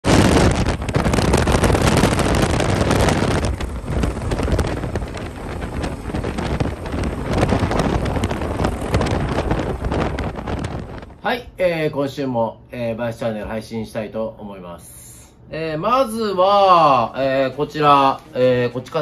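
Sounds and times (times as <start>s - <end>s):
wind buffeting microphone: 0.0s - 11.6s
road and vehicle noise: 0.6s - 11.2s.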